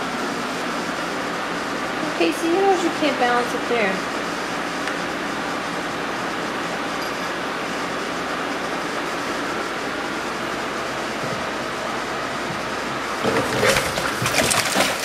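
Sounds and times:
aquarium filter rushing: 0:10.8 - 0:15.0.

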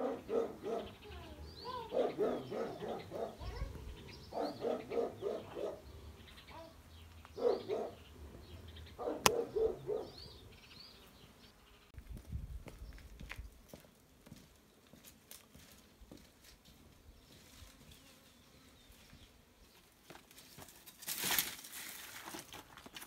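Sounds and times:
dog barking: 0:00.0 - 0:01.0, 0:01.9 - 0:03.6, 0:04.3 - 0:05.8, 0:07.4 - 0:08.0, 0:09.0 - 0:10.2.

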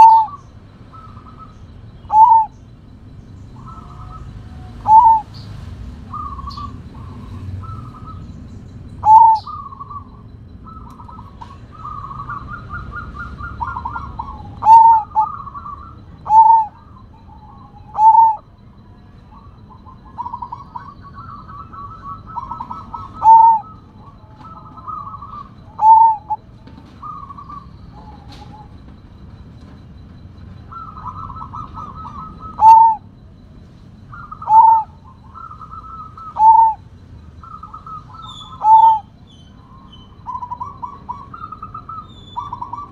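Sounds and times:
dove stuttering coos: 0:00.0 - 0:08.3, 0:09.0 - 0:42.9.

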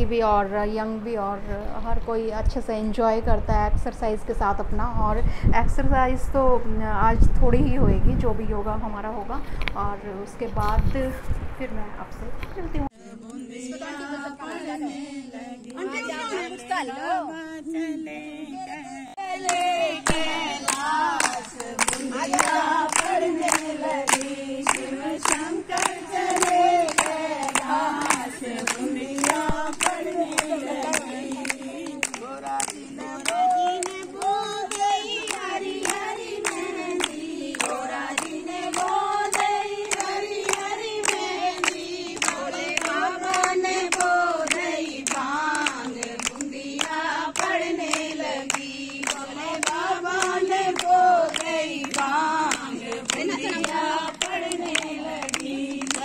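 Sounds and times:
women singing together: 0:12.8 - 0:56.0
rhythmic hand clapping: 0:19.2 - 0:56.0.

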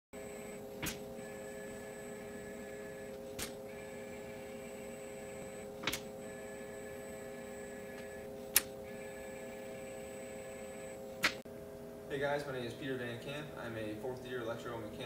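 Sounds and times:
robot arm electric hum: 0:00.2 - 0:11.4.

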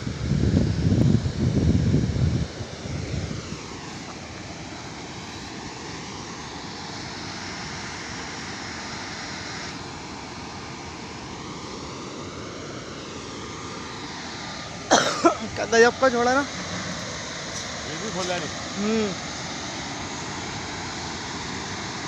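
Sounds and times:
wind buffeting microphone: 0:00.0 - 0:04.1
water rushing through spillway: 0:00.7 - 0:22.0.

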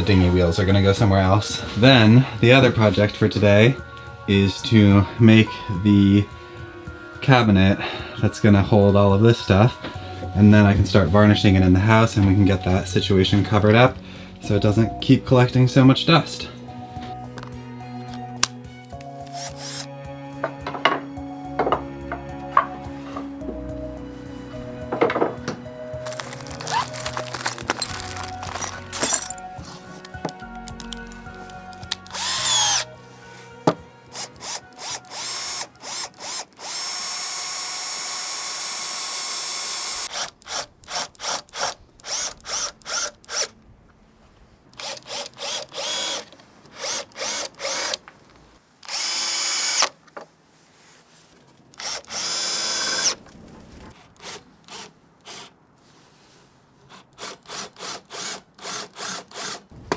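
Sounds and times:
cordless drill motor whining: 0:19.4 - 0:19.9, 0:32.0 - 0:32.9, 0:34.1 - 0:43.5, 0:44.8 - 0:48.0, 0:48.8 - 0:49.9, 0:51.8 - 0:53.2.

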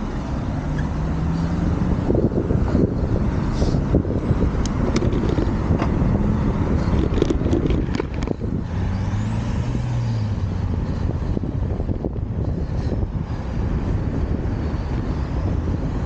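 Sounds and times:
car engine humming: 0:00.0 - 0:16.0
car traffic: 0:00.0 - 0:16.0
wind rumbling on microphone: 0:00.0 - 0:16.0.

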